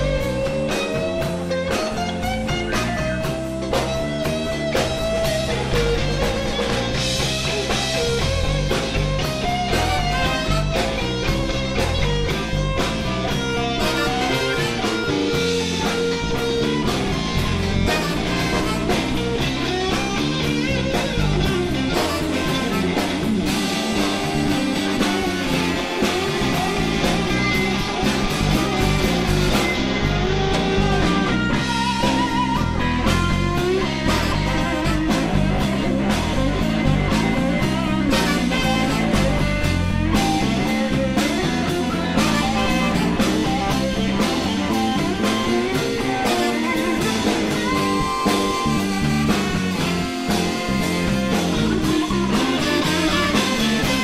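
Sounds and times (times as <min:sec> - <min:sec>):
bass guitar: 0:00.0 - 0:54.0
drums: 0:00.0 - 0:54.0
electric guitars: 0:00.0 - 0:54.0.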